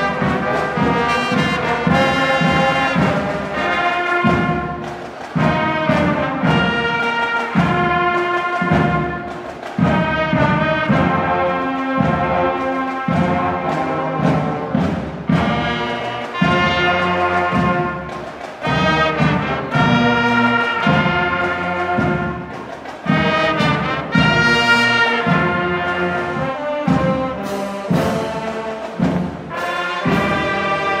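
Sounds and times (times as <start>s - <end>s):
brass chords: 0.0s - 31.0s
drum strokes: 0.0s - 31.0s.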